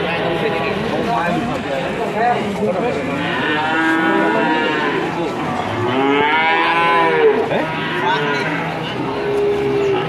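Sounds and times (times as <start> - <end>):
calf mooing: 3.2 - 10.0.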